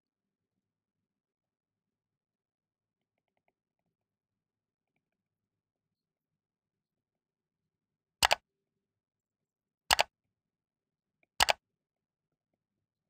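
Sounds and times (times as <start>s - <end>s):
computer mouse double clicks: 8.2s - 8.4s, 9.9s - 10.1s, 11.4s - 11.6s.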